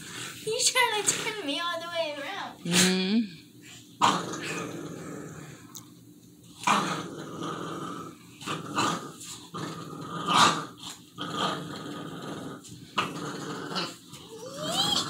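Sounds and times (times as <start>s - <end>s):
dog growling: 4.0s - 5.7s, 6.6s - 15.0s.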